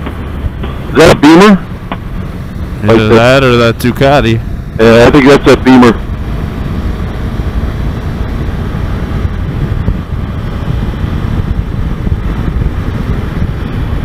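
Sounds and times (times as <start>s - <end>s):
motorcycle engine and road rumble: 0.0s - 14.0s
wind rushing over microphone: 0.0s - 14.0s.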